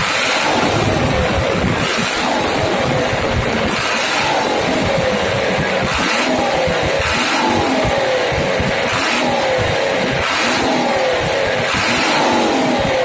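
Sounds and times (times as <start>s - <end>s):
diesel truck engine revving: 0.0s - 13.0s.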